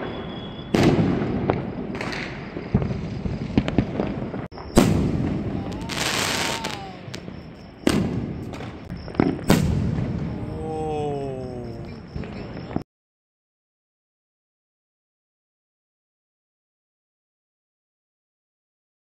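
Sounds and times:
firework crackling: 0.0s - 10.5s
distant firework bangs: 0.0s - 10.6s
loud firework reports: 0.0s - 12.6s.

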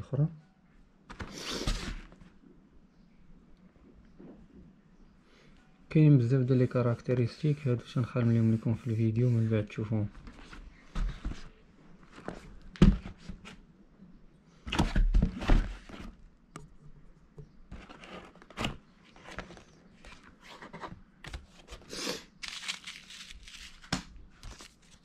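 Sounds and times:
paper and plastic wrap rustling: 21.4s - 25.0s.

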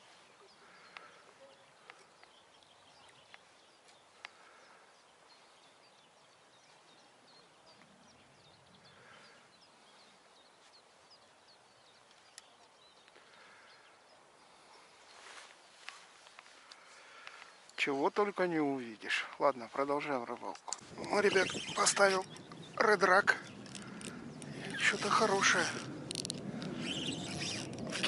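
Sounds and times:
faint birdsong chirps: 0.0s - 28.0s
outdoor hush: 0.0s - 28.0s
sharp clicks: 23.4s - 28.0s.

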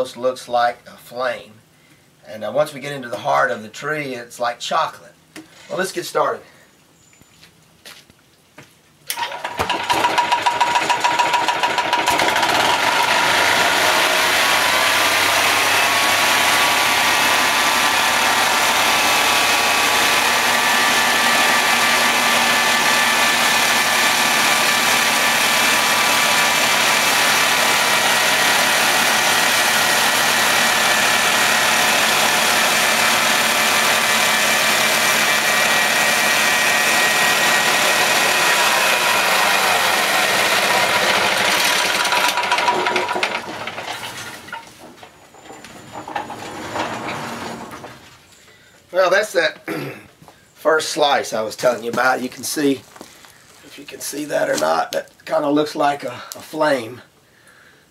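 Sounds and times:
bandsaw blade cutting log: 9.1s - 45.0s
small gasoline engine under load: 9.1s - 47.8s.

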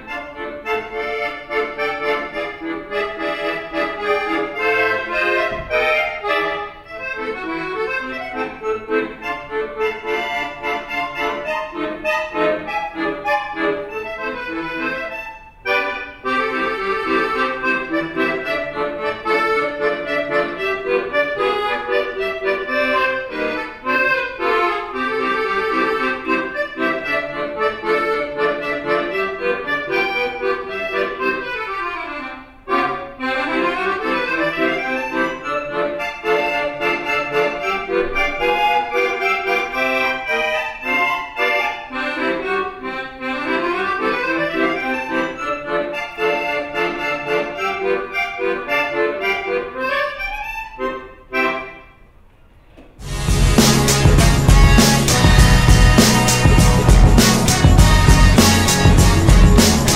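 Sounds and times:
accordion playing fast runs: 0.0s - 52.0s, 53.0s - 59.9s.

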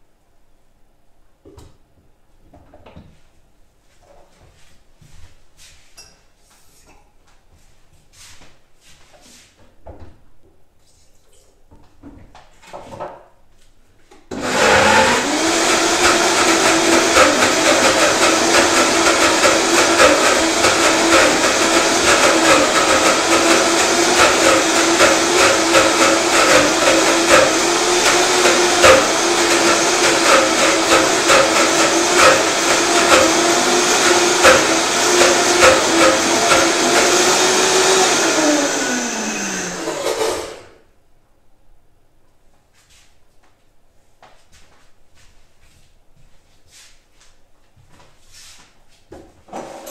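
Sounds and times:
electric blender motor running: 14.3s - 40.8s.

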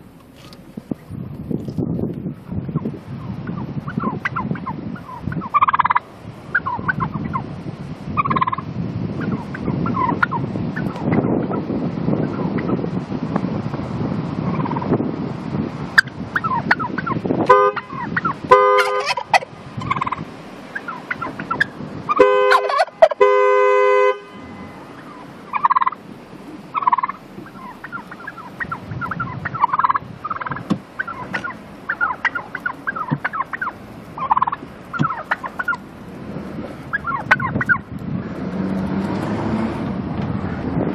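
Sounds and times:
turkey gobbling: 3.5s - 7.5s, 8.2s - 11.1s, 14.5s - 14.9s, 16.0s - 17.2s, 17.8s - 23.3s, 24.9s - 35.8s, 36.9s - 37.8s
car horn: 17.4s - 19.3s, 22.1s - 25.0s.

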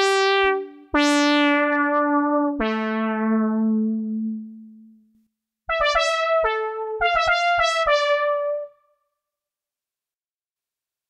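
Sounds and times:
synth brass notes: 5.7s - 8.8s.

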